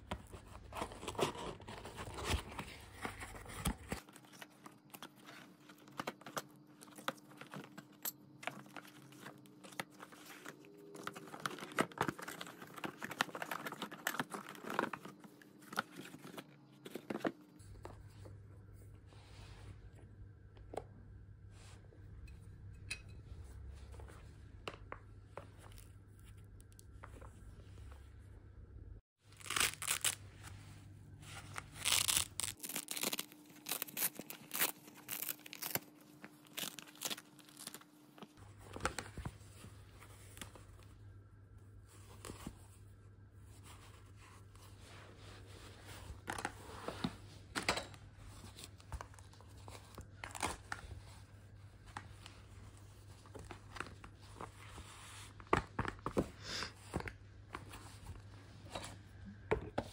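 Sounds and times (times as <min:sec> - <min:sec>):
hook-and-loop ripping: 0:29.4 - 0:30.2, 0:31.8 - 0:35.9.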